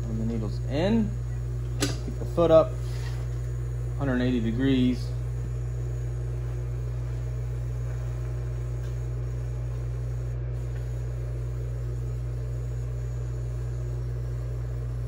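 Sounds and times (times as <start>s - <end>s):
low electrical hum: 0.0s - 15.0s.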